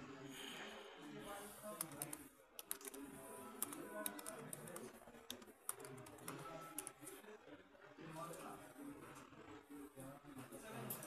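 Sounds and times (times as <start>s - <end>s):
keyboard keys clicking: 1.8s - 3.0s, 3.6s - 6.9s.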